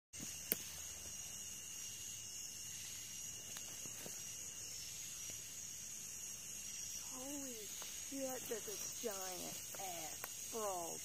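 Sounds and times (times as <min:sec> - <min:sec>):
night insects trilling: 0:00.2 - 0:11.0
faint ticks: 0:09.6 - 0:10.4.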